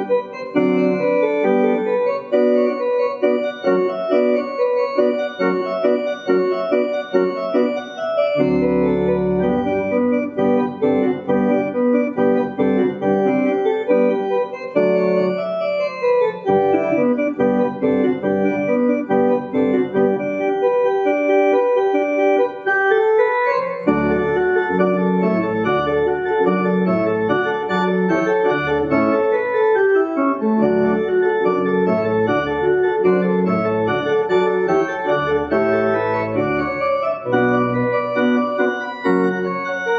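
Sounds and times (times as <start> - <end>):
deep organ pedal bass: 0.0 - 39.9
organ playing sustained chords: 0.0 - 39.9.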